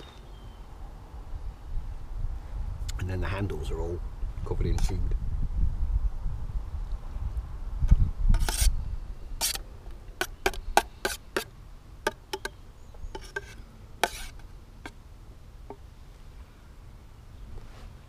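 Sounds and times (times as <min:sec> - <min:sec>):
metal spoon scraping a pan: 0:08.3 - 0:08.7, 0:09.4 - 0:09.6, 0:10.2 - 0:11.5, 0:12.1 - 0:14.5.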